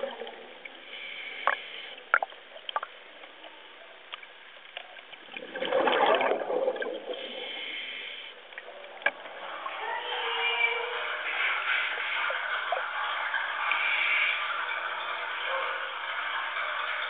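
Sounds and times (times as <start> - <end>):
rush of bubbling water: 0.0 - 3.5, 4.1 - 9.6
water sloshing and gurgling: 0.0 - 10.1.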